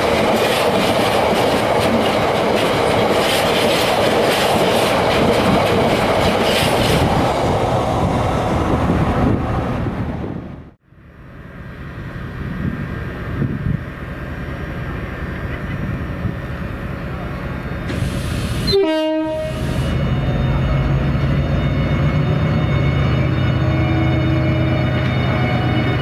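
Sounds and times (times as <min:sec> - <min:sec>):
diesel locomotive engine droning: 0:00.0 - 0:26.0
train rumbling past: 0:00.0 - 0:26.0
train horn toot: 0:18.6 - 0:26.0.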